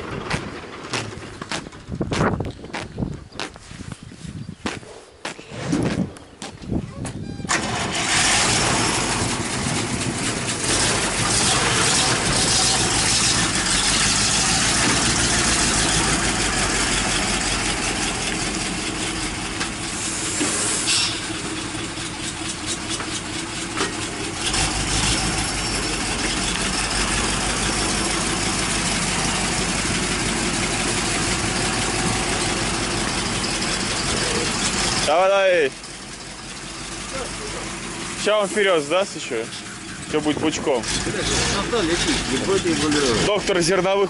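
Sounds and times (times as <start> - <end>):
tractor diesel engine running: 0.0 - 5.2, 6.2 - 44.0.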